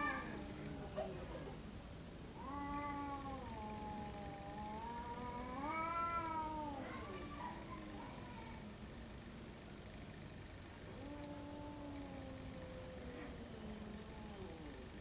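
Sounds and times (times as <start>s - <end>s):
cat yowling: 0.0s - 1.2s, 2.4s - 7.1s.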